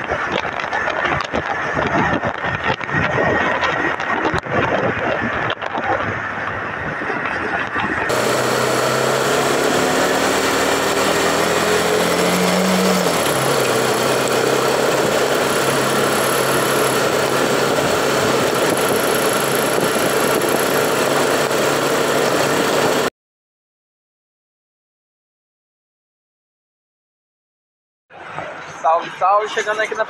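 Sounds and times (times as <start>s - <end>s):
motorcycle engine running: 0.0s - 23.1s
wind rushing: 0.0s - 23.1s.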